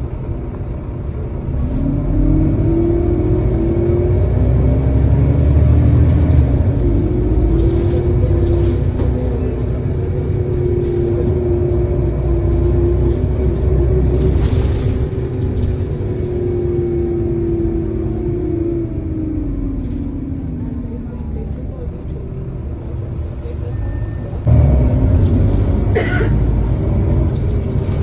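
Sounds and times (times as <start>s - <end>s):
bus diesel engine idling: 6.0s - 28.0s.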